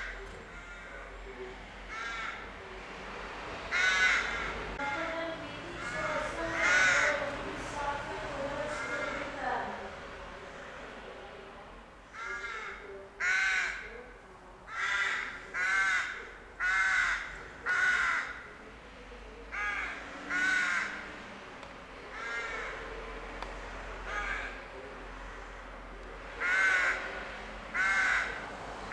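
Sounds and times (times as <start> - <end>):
rooks cawing: 0.0 - 1.2, 1.9 - 2.5, 3.7 - 5.1, 5.8 - 7.3, 8.6 - 9.4, 12.1 - 13.9, 14.7 - 18.5, 19.5 - 21.1, 22.1 - 22.9, 23.6 - 25.6, 26.4 - 28.5.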